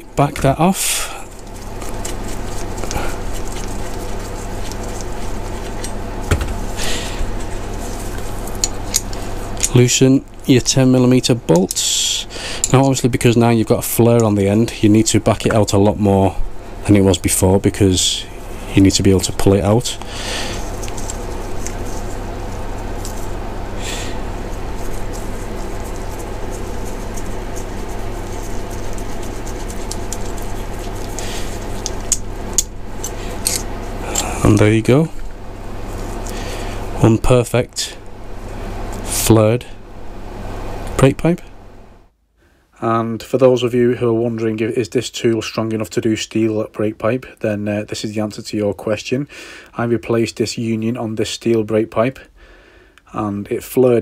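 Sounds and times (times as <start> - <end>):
low hum: 0.0 - 42.1
faint tool clicks and rubs: 1.3 - 6.0, 20.0 - 22.2, 24.5 - 33.6.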